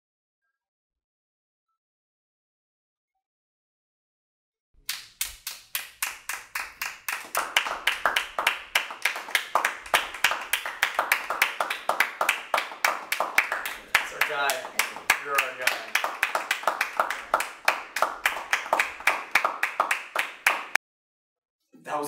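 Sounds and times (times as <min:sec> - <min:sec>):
people clapping: 0:04.8 - 0:20.8.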